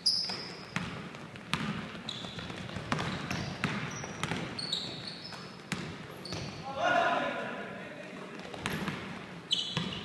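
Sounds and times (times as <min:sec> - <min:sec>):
sneaker squeaks: 0:00.0 - 0:06.7, 0:08.5 - 0:10.0
basketball bouncing on wooden floor: 0:00.2 - 0:06.6, 0:08.4 - 0:09.1, 0:09.7 - 0:10.0.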